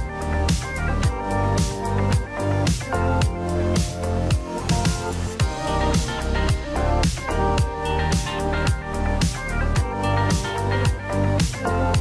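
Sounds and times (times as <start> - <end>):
background music with drum beat: 0.0 - 12.0.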